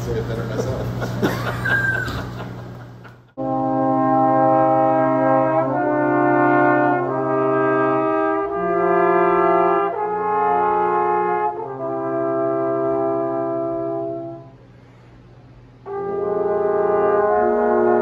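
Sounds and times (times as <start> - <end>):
trombones playing held chords: 3.4 - 14.7, 15.6 - 18.0.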